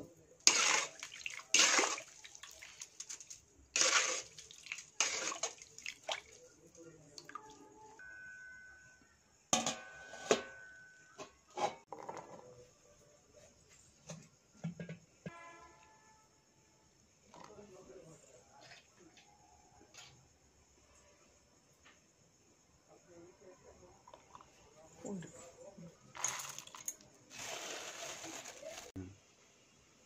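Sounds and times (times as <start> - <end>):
water sloshing in a metal pot: 0.4 - 7.7.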